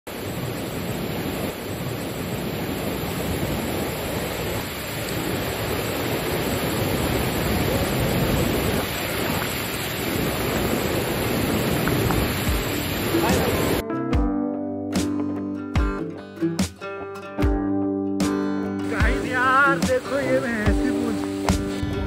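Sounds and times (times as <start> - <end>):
fast-flowing stream rushing: 4.9 - 13.8.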